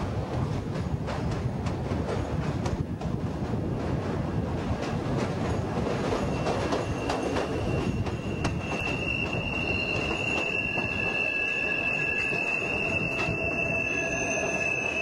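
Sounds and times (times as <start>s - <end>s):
train wheels clicking on rails: 0.0s - 15.0s
high wheel squeal: 6.2s - 15.0s.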